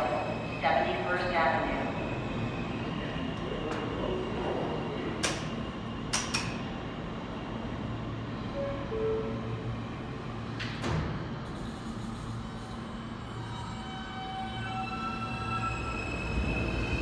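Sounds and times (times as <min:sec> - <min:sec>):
subway car equipment humming: 0:00.0 - 0:17.0.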